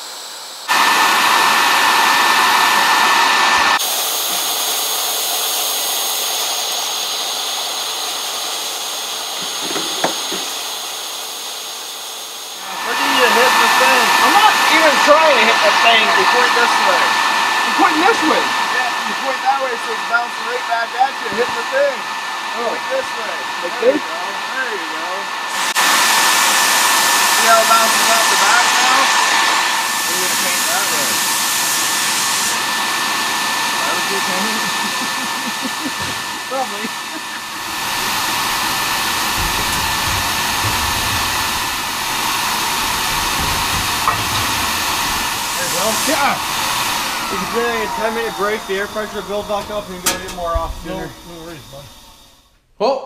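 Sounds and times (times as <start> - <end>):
compressed air blasting hiss: 0.0 - 52.5
thin steady whistle: 45.3 - 52.4.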